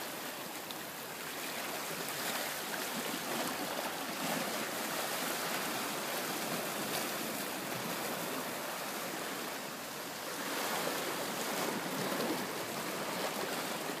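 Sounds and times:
small waves lapping over rocks: 0.0 - 14.0.

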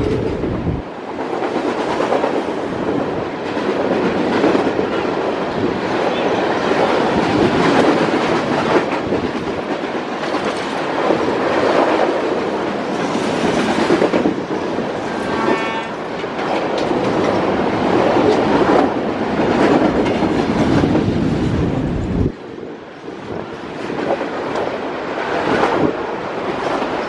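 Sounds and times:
freight train rumbling and clattering: 0.0 - 27.0.

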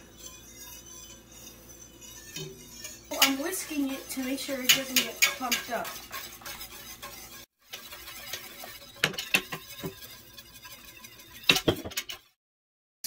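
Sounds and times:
wire whisk scraping a metal pot: 0.0 - 12.4.

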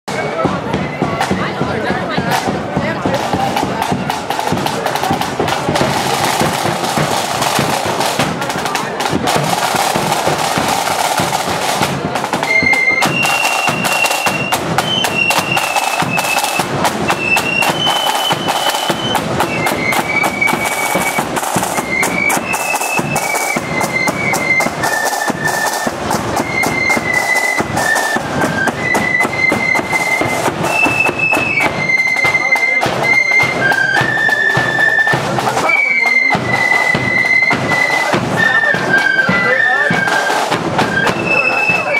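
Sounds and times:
shrill flute melody: 0.1 - 41.9
side drums and bass drum: 0.1 - 41.9.

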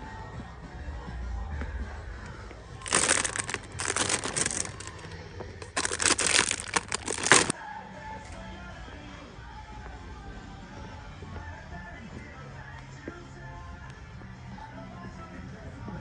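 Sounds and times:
plastic bags crinkling: 2.8 - 7.5.

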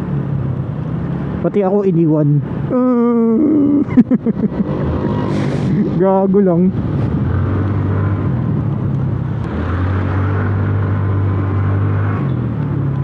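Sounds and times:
wind rushing over microphone: 3.9 - 13.0.

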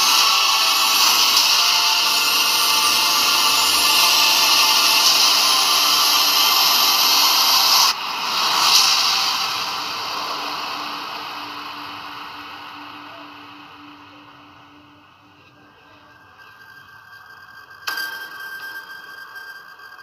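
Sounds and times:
car engine at full throttle: 0.0 - 15.2.

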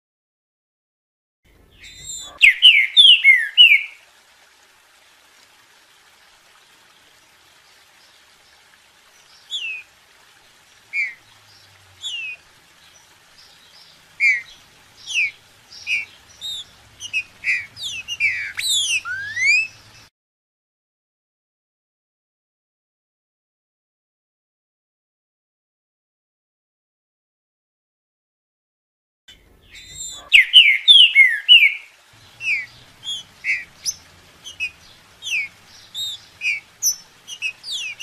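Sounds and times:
faint steady hiss: 1.5 - 20.1, 29.3 - 38.0
bird whistling song: 1.8 - 4.0, 9.4 - 9.9, 10.9 - 11.2, 12.0 - 12.4, 13.7 - 19.8, 29.7 - 38.0.

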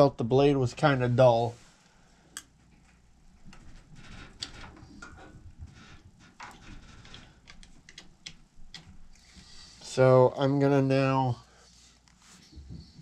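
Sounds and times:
soft rustling: 11.3 - 13.0.

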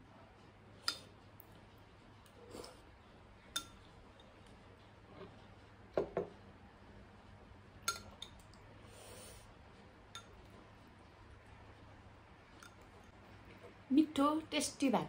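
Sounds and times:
metal spoon clinking ceramic bowl: 3.6 - 3.8, 7.9 - 8.4.

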